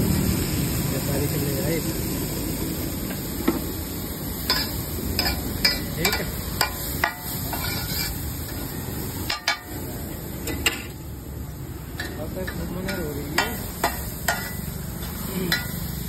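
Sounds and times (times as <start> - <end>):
food sizzling: 0.0 - 16.0
metal spatula scraping griddle: 4.4 - 8.3.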